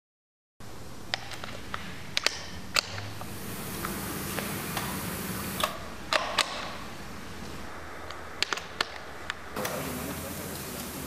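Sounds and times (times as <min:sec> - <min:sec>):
steady hiss: 0:00.6 - 0:11.0
coupling clicks: 0:01.1 - 0:06.8.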